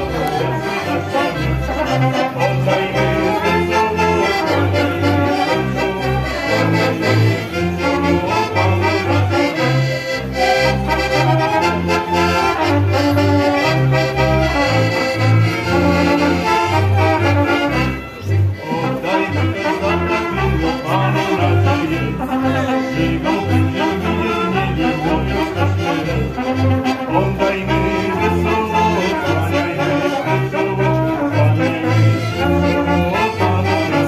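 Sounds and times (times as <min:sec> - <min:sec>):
double bass plucking: 0:00.0 - 0:34.0
fiddle and brass melody: 0:00.0 - 0:34.0.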